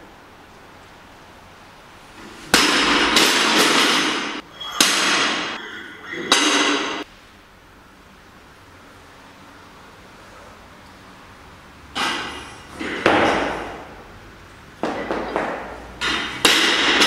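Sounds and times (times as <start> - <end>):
barbell crashing on platform: 2.5 - 5.6, 6.3 - 7.0, 12.0 - 13.9, 14.8 - 17.0.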